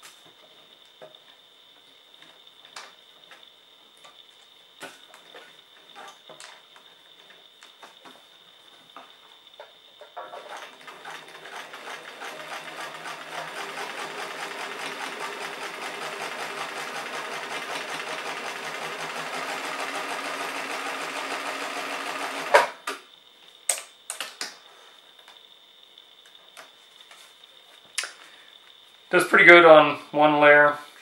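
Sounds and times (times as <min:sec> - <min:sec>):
sewing machine stitching: 0:10.4 - 0:22.7.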